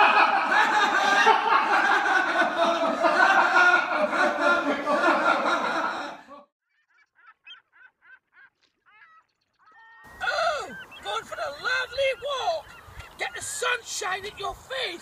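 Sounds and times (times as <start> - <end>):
men laughing: 0.0 - 6.5, 10.1 - 15.0.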